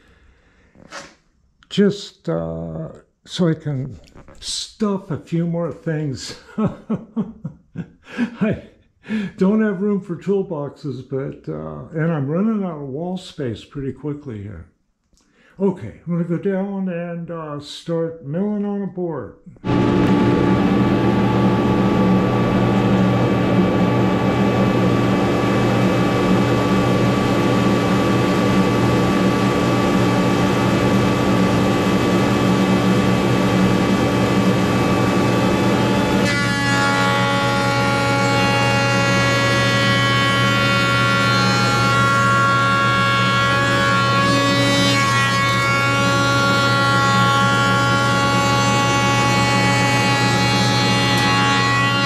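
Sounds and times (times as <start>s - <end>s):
jointer cutting board whine: 19.6s - 52.0s
woodworking machine hum: 19.6s - 52.0s.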